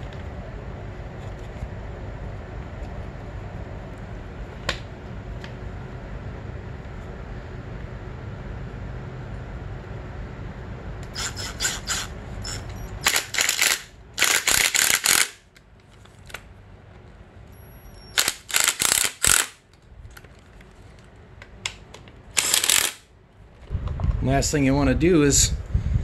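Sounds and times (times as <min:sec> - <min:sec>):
cordless driver whirring: 0:11.1 - 0:15.4, 0:18.0 - 0:19.6, 0:22.3 - 0:23.1.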